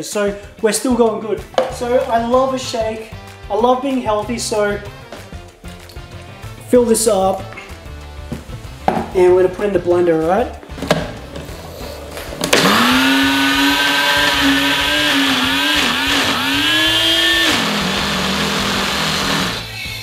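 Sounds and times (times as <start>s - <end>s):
blender running: 12.4s - 19.7s.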